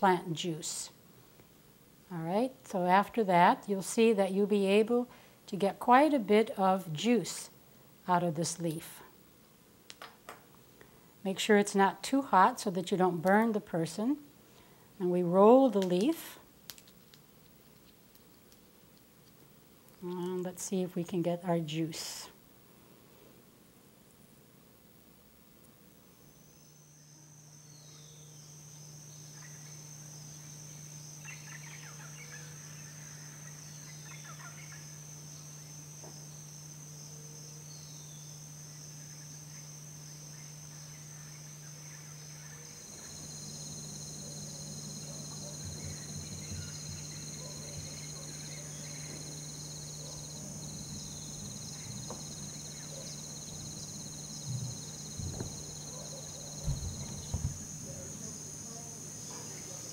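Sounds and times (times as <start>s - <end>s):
low steady hum: 0.0s - 59.9s
high-pitched insect drone: 26.2s - 59.9s.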